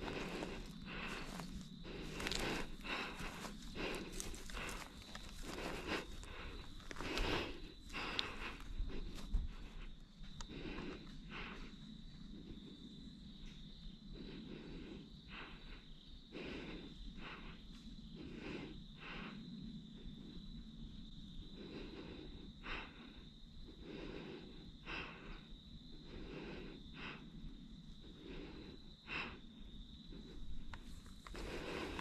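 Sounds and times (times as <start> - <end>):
footsteps crunching on gravel and leaves: 0.0 - 7.4
crickets droning: 0.0 - 32.0.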